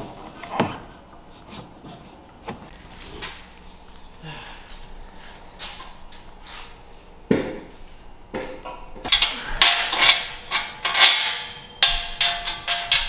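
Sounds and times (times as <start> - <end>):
heavy metal clunk: 8.3 - 13.0
wrench clinking on metal: 9.1 - 13.0.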